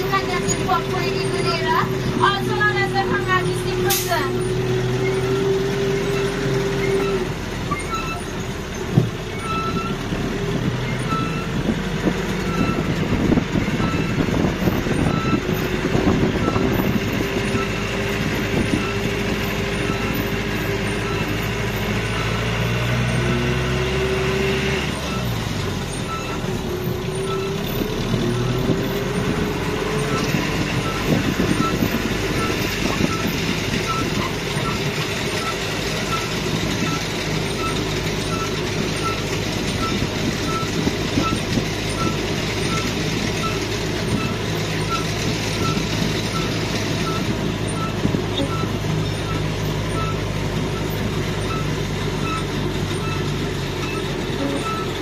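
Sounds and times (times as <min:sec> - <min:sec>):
vehicle engine hum: 0:00.0 - 0:55.0
high electronic beep: 0:53.0 - 0:55.0.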